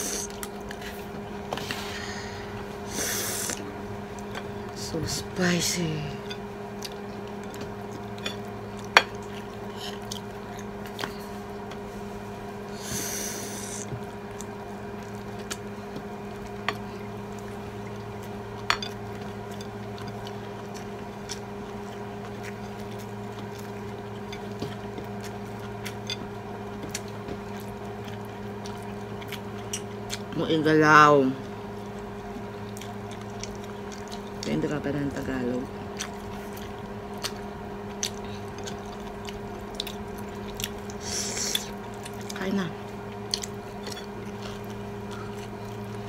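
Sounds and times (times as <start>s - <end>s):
steady electrical hum: 0.0s - 46.0s
hissing breath or slurp: 41.0s - 41.7s.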